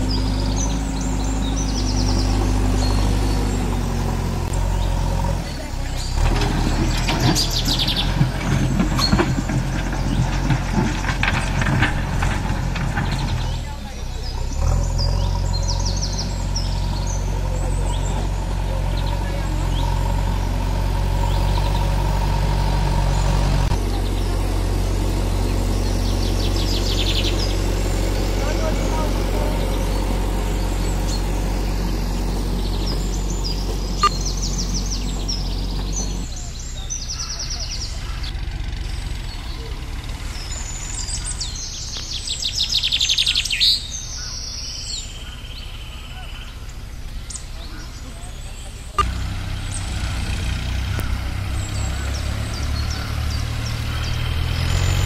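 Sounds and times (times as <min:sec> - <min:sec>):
birds chirping: 0:00.0 - 0:55.0
diesel engine under load: 0:00.0 - 0:55.0
clanks and rattles of rock: 0:06.1 - 0:13.9.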